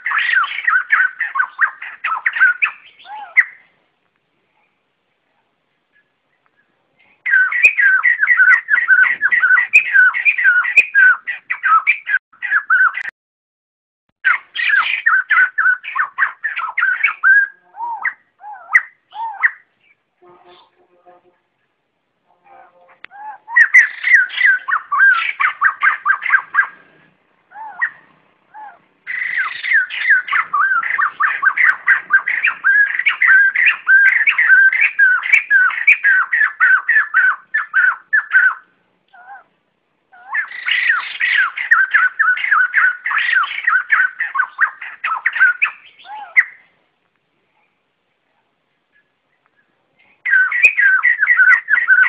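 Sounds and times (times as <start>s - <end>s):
birds chattering: 0.0s - 3.8s, 5.8s - 13.1s, 14.2s - 46.8s, 48.8s - 52.0s.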